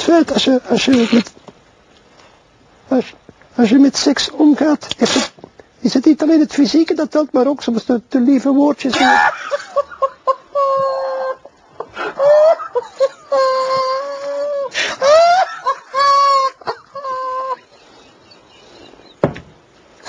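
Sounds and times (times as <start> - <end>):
man's stifled laughter: 8.9 - 19.2.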